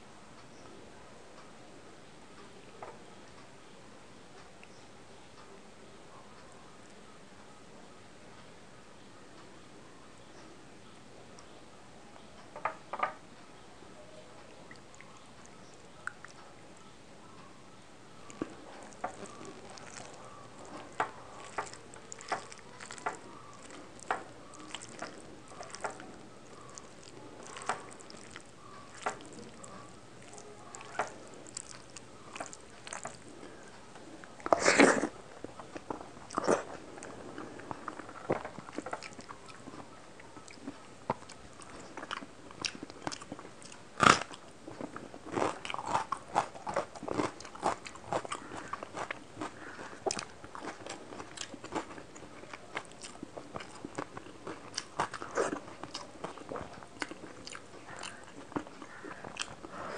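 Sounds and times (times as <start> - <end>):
fingers squishing rice: 18.2 - 59.9
biting crunching and chewing: 18.3 - 59.9.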